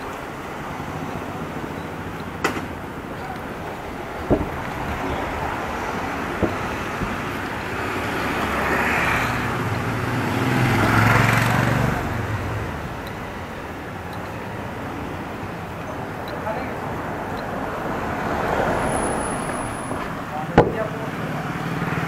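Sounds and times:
city traffic hum: 0.0s - 22.0s
vehicle passing: 0.0s - 22.0s.

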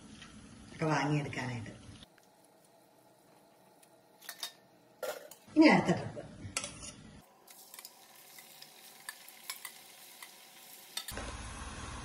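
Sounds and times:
deep-frying sizzle and crackles: 7.2s - 12.0s.

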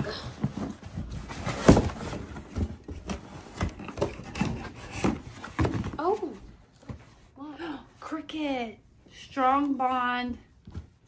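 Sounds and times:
cardboard rustling: 0.0s - 7.4s
knocks and scrapes of contents: 0.0s - 7.4s.

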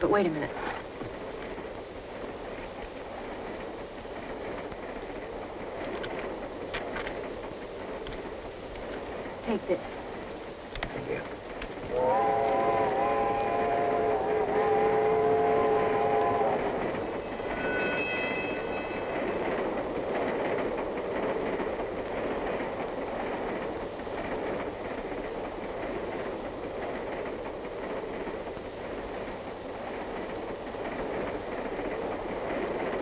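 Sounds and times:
train rumbling on rails: 0.0s - 33.0s
train whistle chord: 11.9s - 19.1s.

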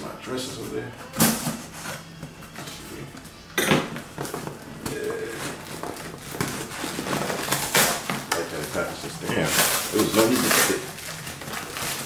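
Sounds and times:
knife cutting tape and cardboard: 6.2s - 10.9s.

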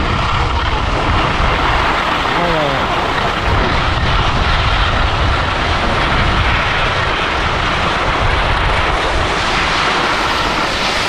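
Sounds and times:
low rumble: 0.0s - 11.0s
wind buffeting microphone: 0.0s - 11.0s.

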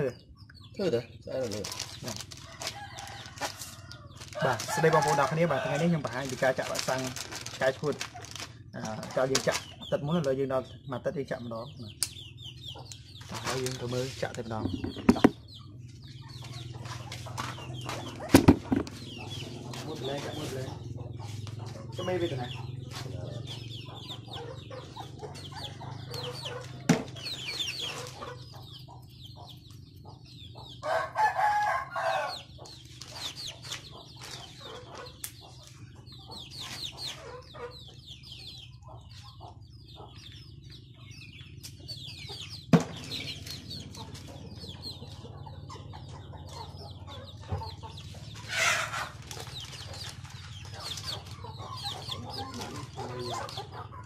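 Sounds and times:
chickens clucking: 0.0s - 54.0s.

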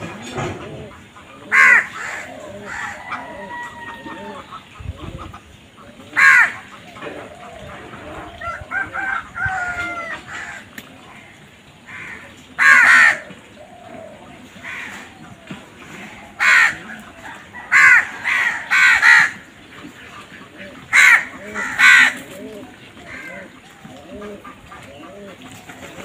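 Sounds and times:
crows cawing: 1.5s - 4.3s, 6.2s - 6.7s, 8.5s - 11.3s, 11.9s - 13.3s, 14.6s - 15.2s, 16.4s - 17.0s, 17.6s - 19.4s, 20.9s - 22.4s, 23.0s - 23.5s.

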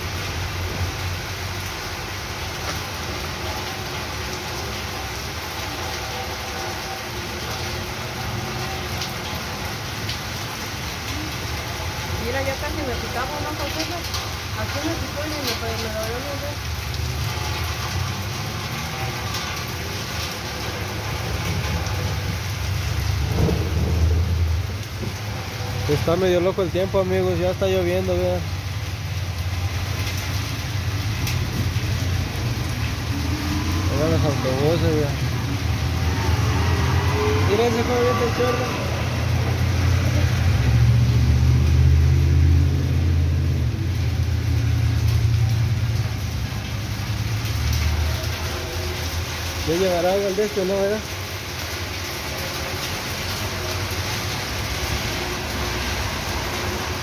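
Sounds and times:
rain falling on wet street: 0.0s - 57.0s.

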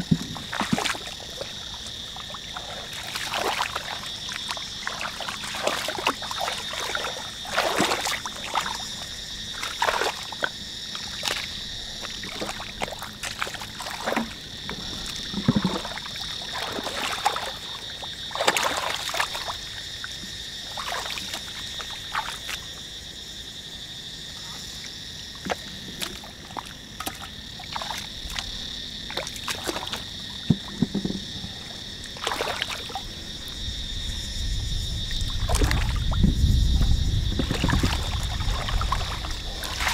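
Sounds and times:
hands splashing in shallow water: 0.0s - 8.9s, 12.1s - 19.7s, 20.7s - 22.6s, 32.0s - 33.0s, 35.3s - 36.2s, 37.4s - 39.9s.

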